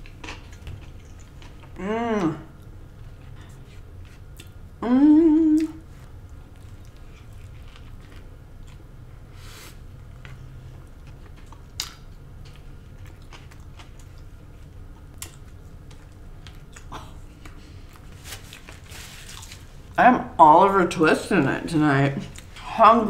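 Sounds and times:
chewing food: 0.0 - 1.8, 5.6 - 8.9, 10.0 - 20.0
steady low hum: 0.0 - 23.0.

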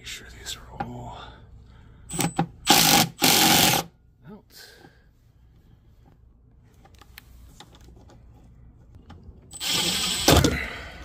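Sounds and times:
cordless driver spinning: 2.1 - 3.8, 9.5 - 10.5.

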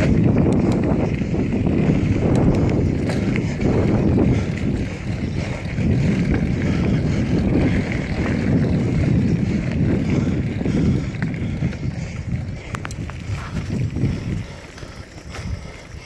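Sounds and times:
bike tyres on gravel: 0.0 - 16.0
wind buffeting microphone: 0.0 - 16.0
faint clicks: 2.3 - 3.2, 12.6 - 13.3.

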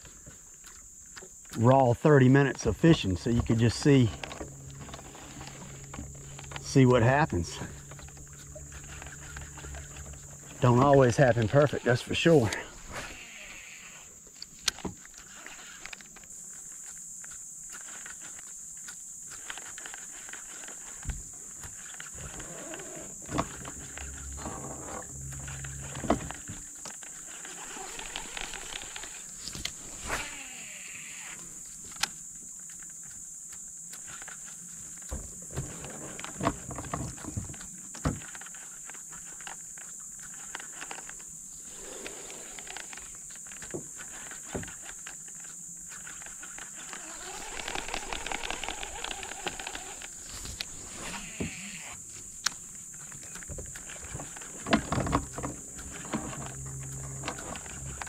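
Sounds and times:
steady high-pitched drone: 2.7 - 12.7, 23.2 - 26.9, 54.3 - 58.0
knocks and clicks on boat hull: 53.4 - 58.0.

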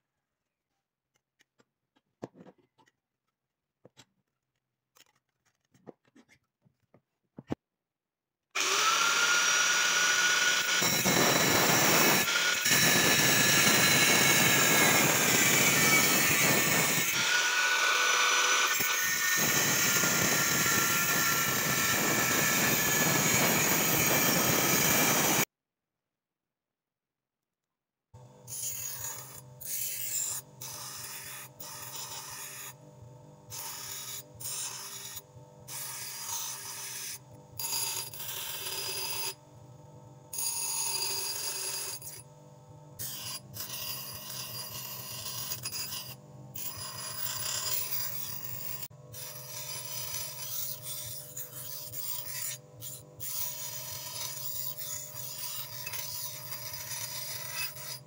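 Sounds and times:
bench grinder motor hum: 8.6 - 25.5, 40.3 - 58.0.

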